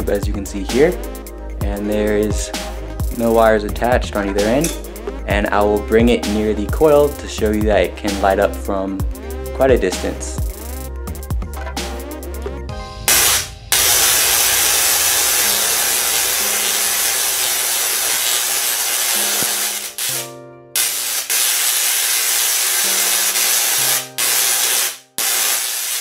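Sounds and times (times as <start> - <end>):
tesla coil spark gap hissing: 13.1 - 26.0.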